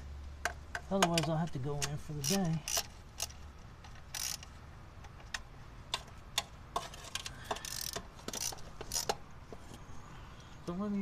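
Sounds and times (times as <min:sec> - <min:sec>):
metal tool clicks and taps: 0:00.4 - 0:02.9.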